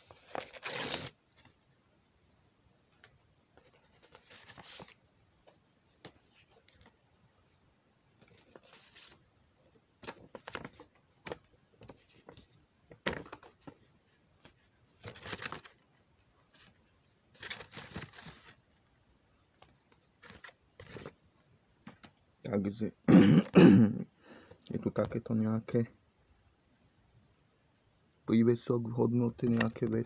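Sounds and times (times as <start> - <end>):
envelope rustling and crinkling: 0.0 - 1.6, 3.0 - 5.0, 8.2 - 9.2, 10.0 - 18.7, 19.5 - 21.2.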